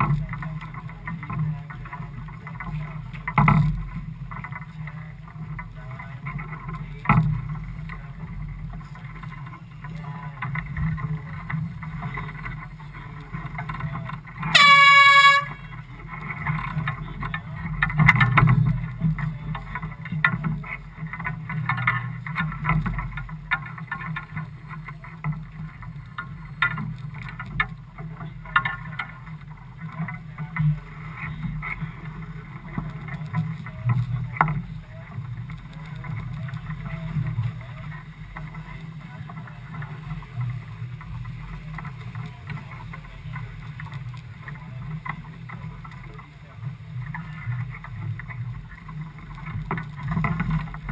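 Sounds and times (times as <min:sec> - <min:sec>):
boat engine low rumble: 0:00.0 - 0:50.9
wind: 0:00.0 - 0:50.9
air horn blast: 0:14.5 - 0:15.8.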